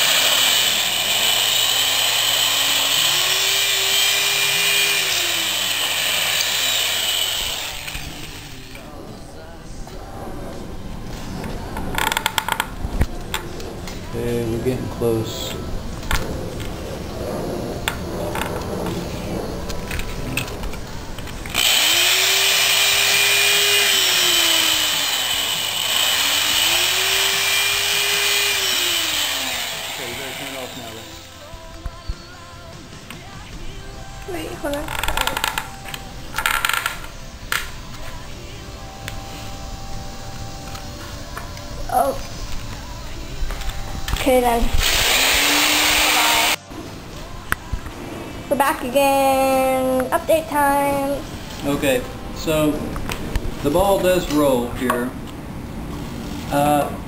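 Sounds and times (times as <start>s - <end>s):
electric drill reaming wood: 0.0s - 8.8s, 21.5s - 31.4s, 44.7s - 46.6s.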